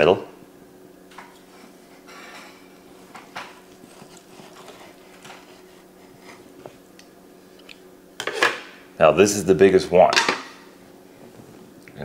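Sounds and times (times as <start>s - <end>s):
steady low hum: 0.0s - 12.0s
knife cutting through meat: 3.6s - 6.6s.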